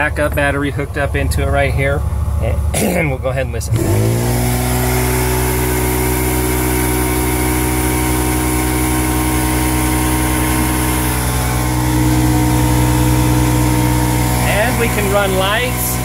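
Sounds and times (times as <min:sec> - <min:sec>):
electric air compressor running: 0:03.7 - 0:16.0.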